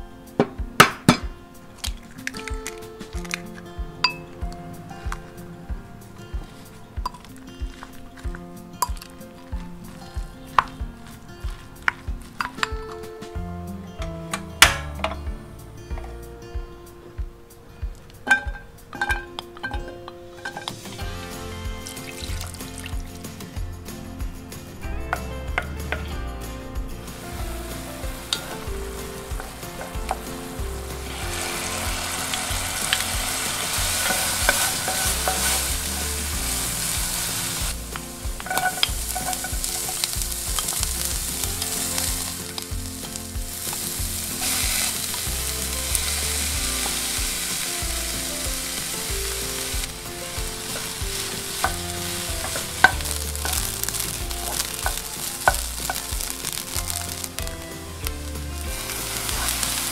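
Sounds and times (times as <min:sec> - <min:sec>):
food sizzling in a pan: 0:20.4 - 0:23.5, 0:27.0 - 0:59.9.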